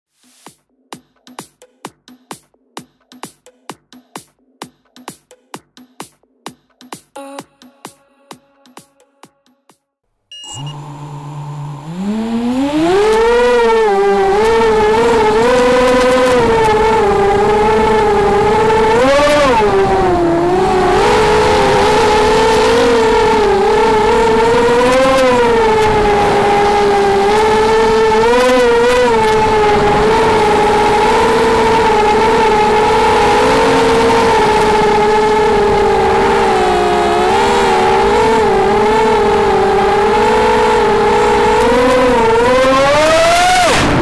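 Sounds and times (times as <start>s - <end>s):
quadcopter motors whining: 10.4s - 44.0s.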